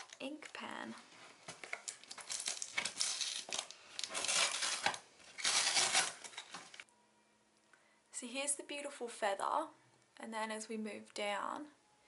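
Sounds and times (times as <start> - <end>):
plastic wrapping crinkling: 0.0 - 6.9.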